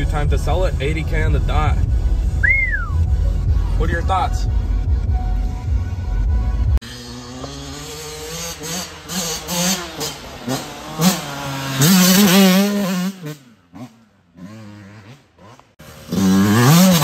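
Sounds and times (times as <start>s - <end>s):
dirt bike revving past: 6.8s - 17.0s.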